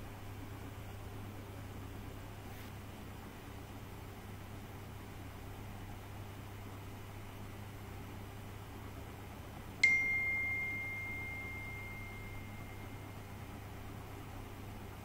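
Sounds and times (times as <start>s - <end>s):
faint steady hum: 0.0s - 15.0s
bell-like ding: 9.8s - 13.3s.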